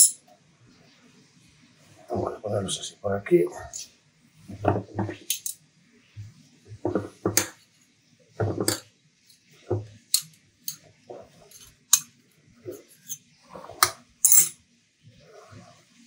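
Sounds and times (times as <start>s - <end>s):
utensils clinking on metal tray: 0.0s - 0.2s, 4.6s - 5.6s, 10.1s - 12.1s, 12.7s - 14.6s.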